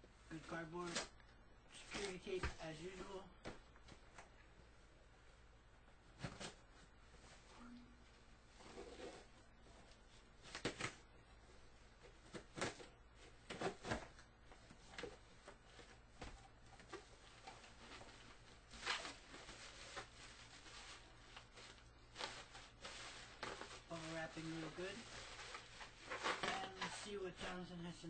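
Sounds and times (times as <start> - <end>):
cardboard and bubble wrap rustling: 6.0 - 7.7, 8.5 - 28.0.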